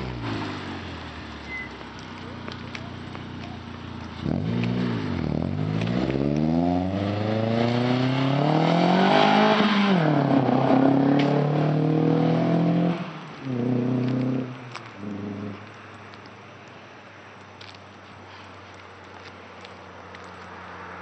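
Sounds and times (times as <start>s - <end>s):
car exhaust accelerating: 0.0s - 15.9s.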